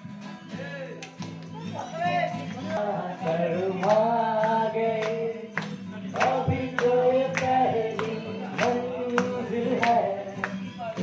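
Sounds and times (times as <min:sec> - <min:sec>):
acoustic guitar strumming: 0:00.0 - 0:11.0
man singing into a microphone: 0:02.6 - 0:11.0.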